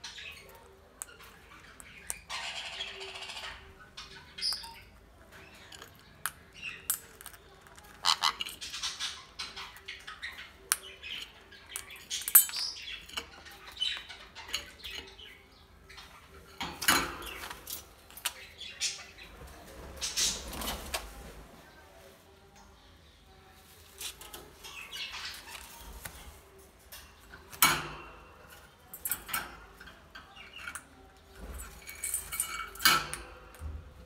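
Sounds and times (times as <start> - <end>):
beak and food clicking on metal: 0.0 - 19.0, 23.9 - 33.8
parrot squawking: 2.3 - 3.6, 8.0 - 8.5.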